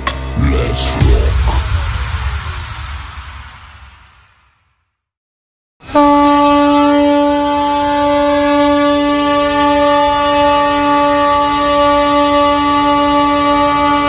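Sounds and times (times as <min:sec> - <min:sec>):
ship's horn blast: 0:05.8 - 0:14.0.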